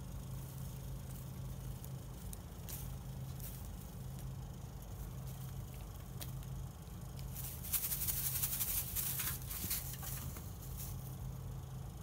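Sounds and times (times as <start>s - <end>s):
plastic wrap toy rustling: 7.3s - 11.0s.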